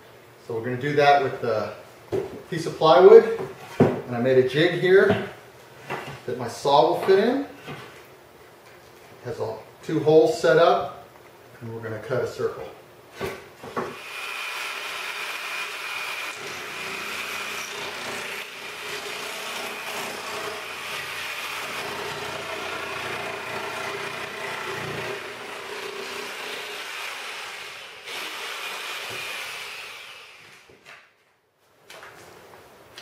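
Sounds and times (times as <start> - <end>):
jigsaw cutting plywood: 13.7 - 30.7.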